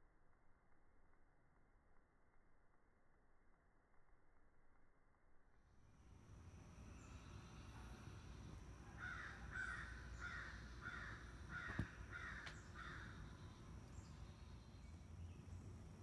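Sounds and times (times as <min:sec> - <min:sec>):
distant crow cawing: 0:08.9 - 0:13.6.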